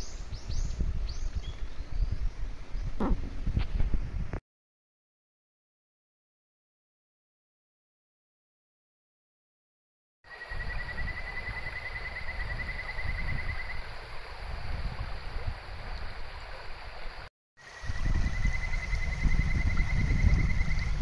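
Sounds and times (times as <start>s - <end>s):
frog trilling call: 10.3s - 13.8s.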